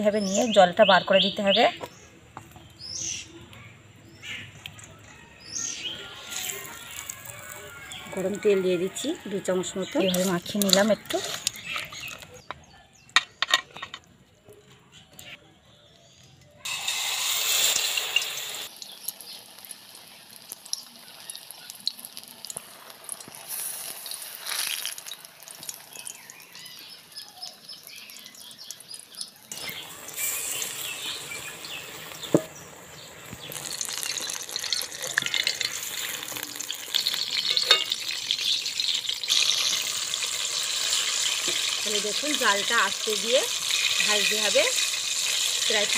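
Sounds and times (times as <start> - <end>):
food sizzling in hot oil: 5.4 - 12.5, 16.6 - 45.9.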